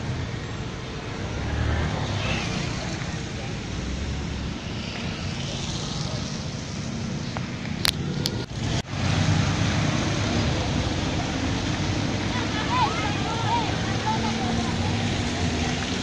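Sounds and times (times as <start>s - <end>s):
motorcycle and car engines: 0.0s - 16.0s
tyre hiss on wet asphalt: 1.9s - 9.2s
sharp clicks: 7.3s - 8.5s.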